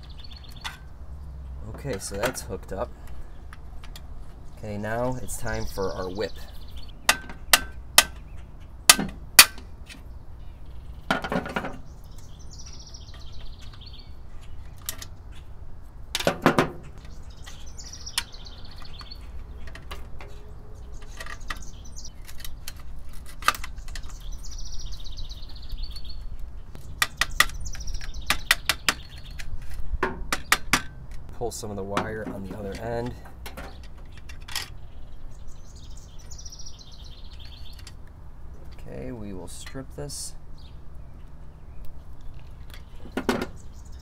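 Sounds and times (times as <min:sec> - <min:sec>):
bird singing trilled phrase: 0:04.5 - 0:07.6, 0:16.9 - 0:19.3, 0:20.2 - 0:22.2, 0:23.8 - 0:29.4, 0:34.8 - 0:37.8.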